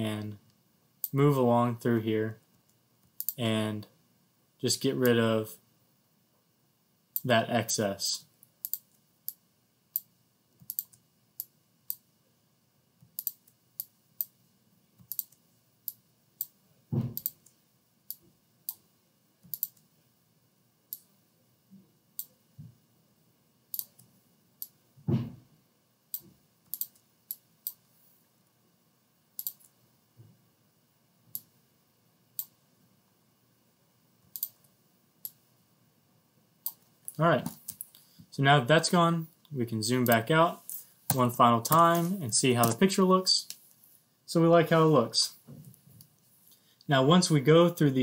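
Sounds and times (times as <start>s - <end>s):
computer mouse clicking: 3.1s - 3.4s, 8.6s - 9.4s, 10.0s - 12.0s, 13.0s - 14.4s, 15.0s - 16.6s, 17.2s - 18.8s, 19.4s - 19.9s, 23.7s - 24.8s, 26.1s - 27.9s, 29.4s - 29.8s, 34.3s - 34.6s
dull thumps: 25.0s - 25.4s.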